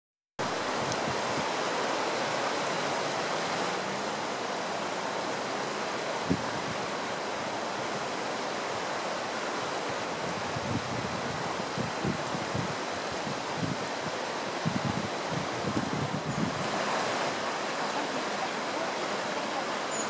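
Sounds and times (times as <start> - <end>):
floodwater rushing: 0.4 - 20.0.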